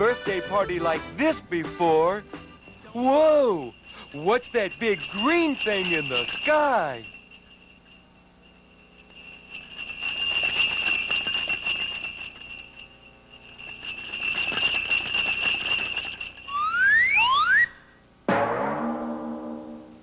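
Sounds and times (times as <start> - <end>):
sleigh bells jingling: 0.0 - 17.0
rising whistle-like glide: 16.5 - 18.0.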